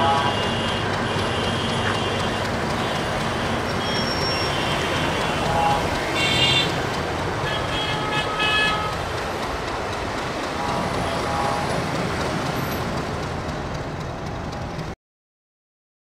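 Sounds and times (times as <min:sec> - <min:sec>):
vehicle horns honking: 0:00.0 - 0:09.4, 0:10.6 - 0:12.0
city road traffic: 0:00.0 - 0:15.0.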